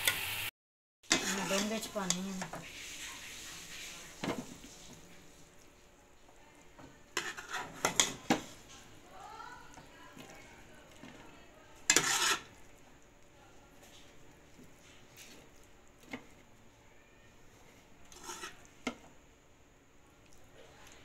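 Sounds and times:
spoon scraping and clinking on pot: 1.1s - 2.6s, 7.2s - 8.6s, 11.8s - 12.6s, 18.1s - 19.0s.

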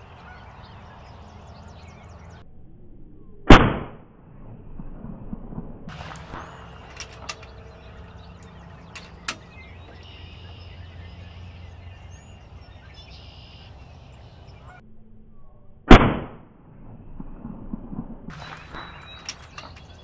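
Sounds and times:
air rifle shot: 3.5s - 4.1s, 15.9s - 16.4s
faint clicks: 5.9s - 10.3s, 18.3s - 20.0s.

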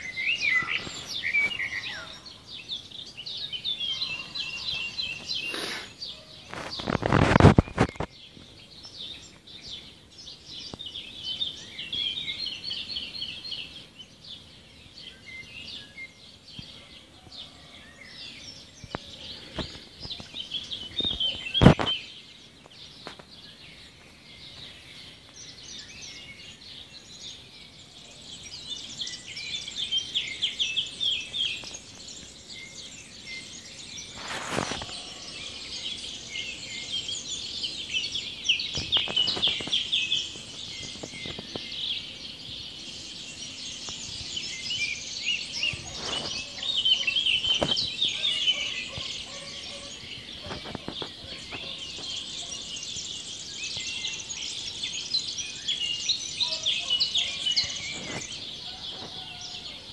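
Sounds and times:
small birds chirping: 0.0s - 59.9s.

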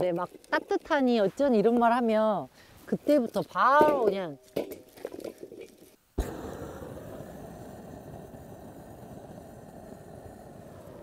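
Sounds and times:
gas torch flame rushing: 6.2s - 11.0s.

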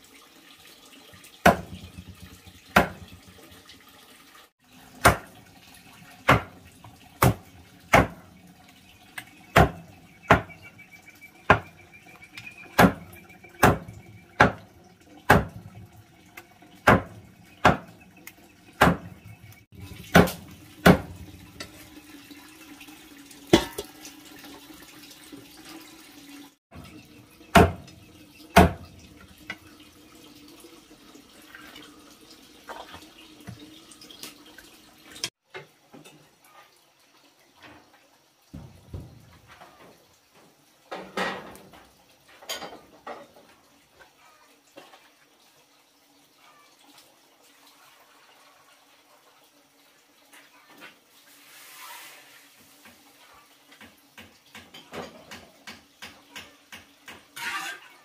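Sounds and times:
cleaver chopping on wooden block: 1.5s - 1.9s, 2.8s - 3.0s, 5.0s - 5.3s, 6.3s - 6.6s, 7.2s - 8.2s, 9.6s - 10.5s, 11.5s - 11.7s, 12.8s - 14.6s, 15.3s - 15.6s, 16.9s - 17.9s, 18.8s - 19.1s, 20.2s - 21.1s, 27.6s - 27.9s, 28.6s - 28.8s.

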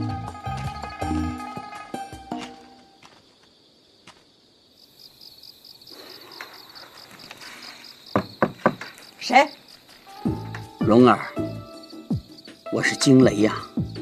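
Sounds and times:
crickets chirping: 0.0s - 14.0s
knocks on wooden door: 8.1s - 8.9s.

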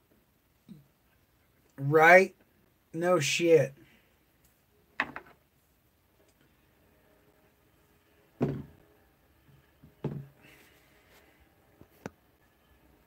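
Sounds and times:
dull knocks on desk: 8.4s - 8.7s, 9.8s - 10.3s.

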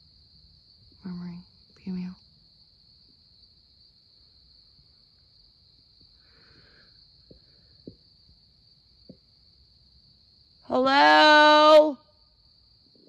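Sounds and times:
night insects trilling: 0.0s - 13.0s.

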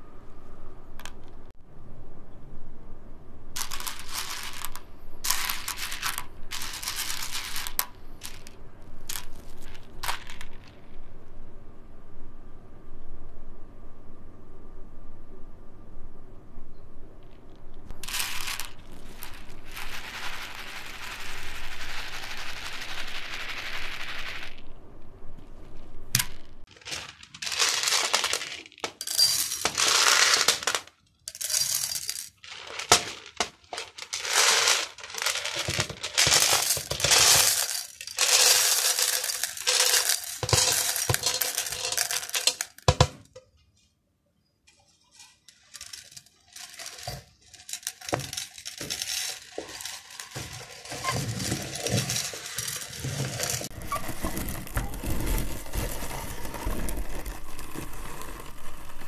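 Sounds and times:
steady rustle: 17.9s - 42.9s, 44.7s - 59.0s
candies rattling in metal hopper: 26.2s - 43.1s, 45.2s - 59.0s.

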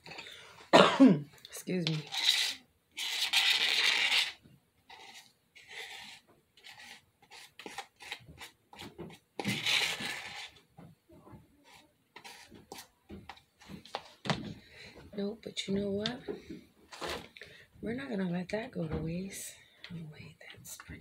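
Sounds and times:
utensil scraping plastic tub: 1.8s - 10.6s, 11.6s - 14.2s, 16.9s - 17.4s.

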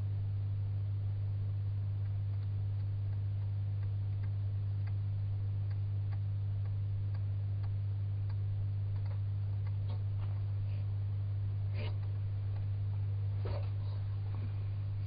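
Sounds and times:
low electrical hum: 0.0s - 15.0s
soft clicks of jaws chewing: 9.0s - 10.5s, 11.7s - 14.5s.

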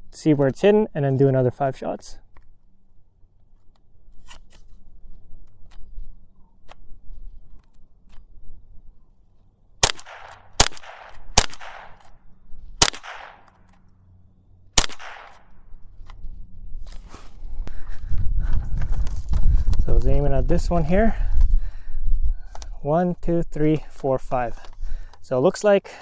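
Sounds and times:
rifle shots with echo: 9.8s - 12.2s, 12.8s - 13.6s, 14.8s - 15.6s.

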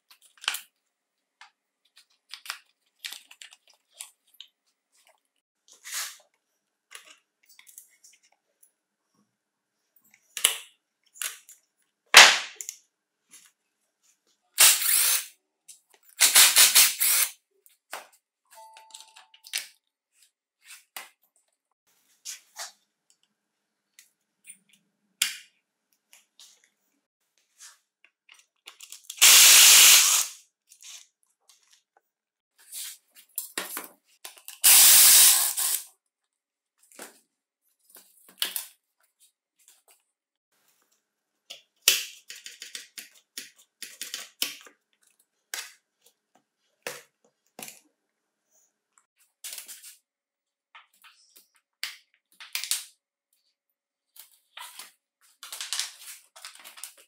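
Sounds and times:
clicks and clatters of small parts: 28.0s - 29.2s.

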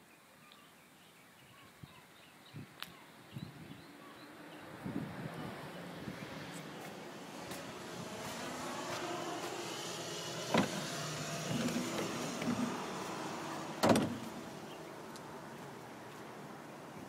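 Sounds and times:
cab door sliding open: 9.6s - 14.8s.

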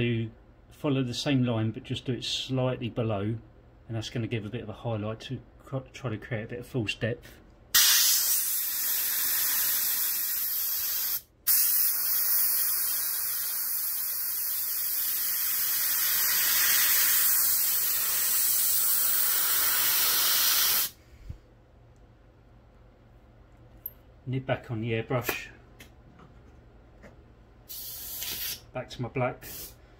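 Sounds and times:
airbrush hissing: 7.8s - 21.0s, 27.7s - 28.6s, 29.4s - 29.8s.

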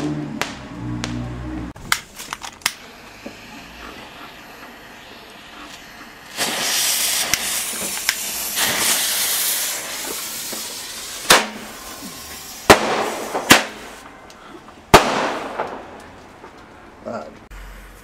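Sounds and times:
fireworks hissing: 2.1s - 14.1s
small firework cracks: 6.3s - 14.0s, 14.9s - 16.2s
sharp firework bangs: 6.3s - 14.1s, 14.9s - 16.1s.

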